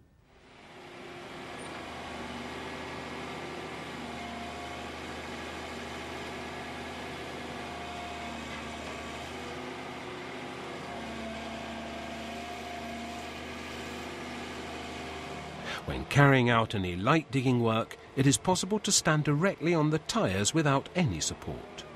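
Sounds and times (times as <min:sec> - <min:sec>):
hydraulic whine: 0:00.3 - 0:16.3
diesel engine running: 0:00.5 - 0:21.9.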